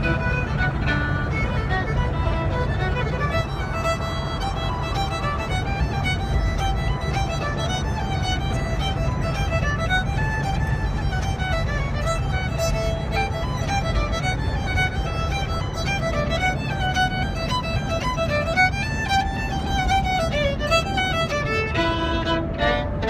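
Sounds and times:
fiddle playing quick tune: 0.0 - 23.0
van engine rumble: 0.0 - 23.0.

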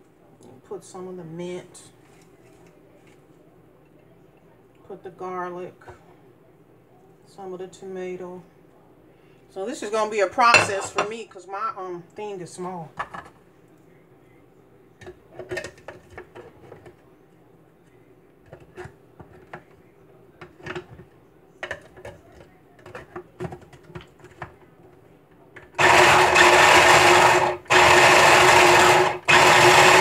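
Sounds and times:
food processor motor grinding: 25.8 - 30.0.

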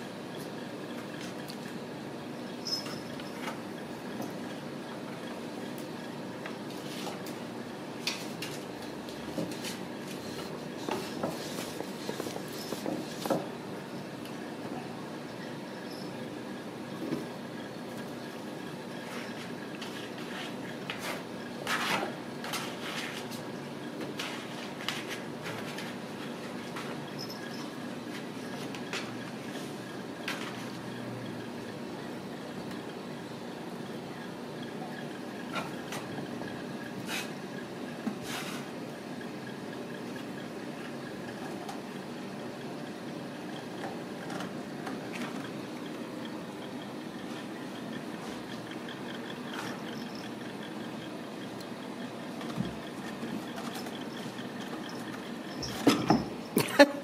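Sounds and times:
steady low hum: 0.0 - 57.0
kittens scratching and knocking: 9.3 - 13.6.

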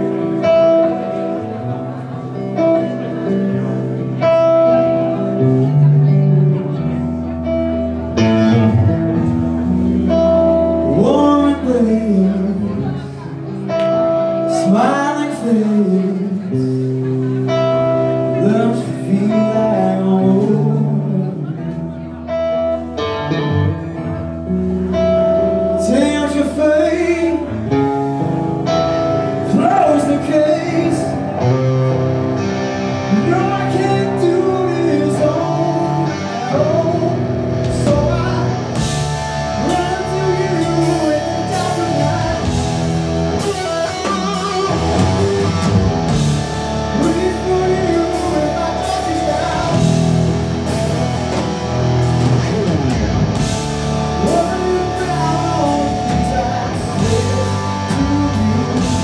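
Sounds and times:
electric guitar: 0.0 - 59.0
man singing: 10.6 - 13.6, 14.4 - 17.4, 18.2 - 22.1, 25.8 - 28.0, 29.2 - 31.7, 32.9 - 52.8, 53.4 - 59.0.

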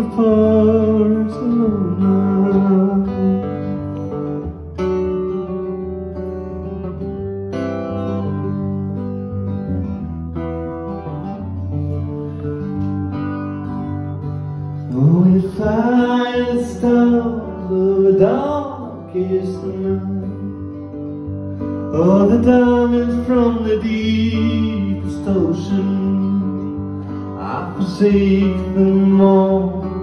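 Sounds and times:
man wordless singing: 0.0 - 3.7, 14.9 - 20.7, 21.9 - 26.8, 27.4 - 30.0
acoustic guitar picking: 0.0 - 30.0.

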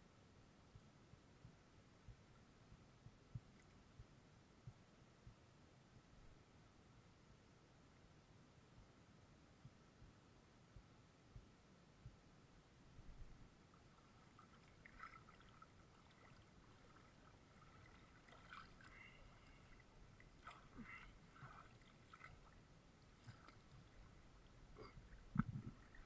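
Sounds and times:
river water splashing and dripping: 13.7 - 26.0.

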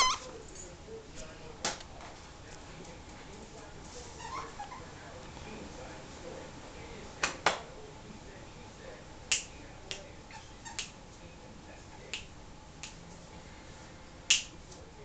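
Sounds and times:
squeaky toy squeaking: 0.0 - 0.3.

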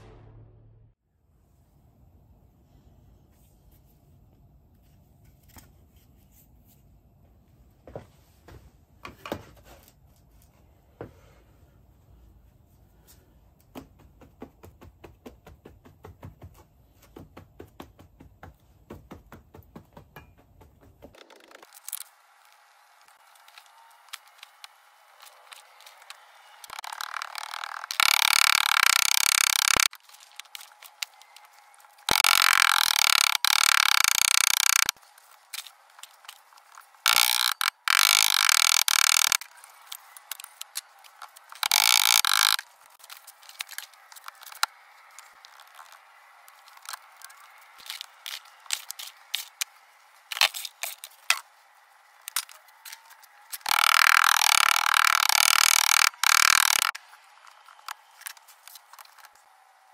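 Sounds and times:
small clicks and scrapes: 21.0 - 51.6, 52.2 - 59.5.

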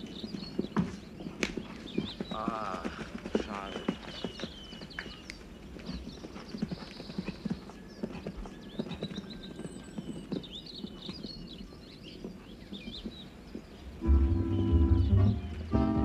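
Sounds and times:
birds chirping: 0.0 - 16.0
horse hoofbeats on turf: 0.0 - 16.0.

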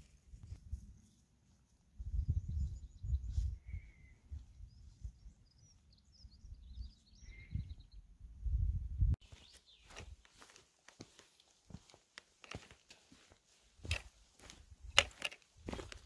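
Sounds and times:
wind rumbling on microphone: 2.0 - 5.5, 6.2 - 9.2
birds chirping: 2.1 - 8.3, 9.2 - 11.4.

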